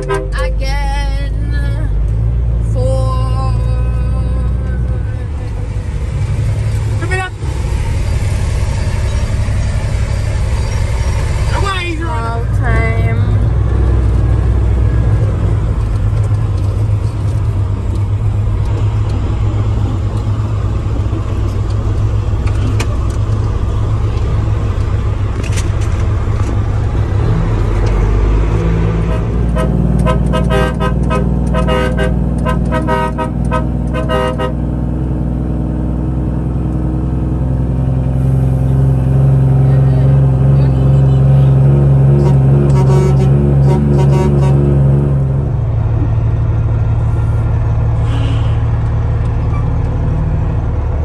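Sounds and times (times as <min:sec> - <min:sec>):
vehicle horn tooting rapidly: 0:00.0 - 0:00.6, 0:29.1 - 0:34.6, 0:42.2 - 0:44.6
heavy truck engine running: 0:00.0 - 0:51.0.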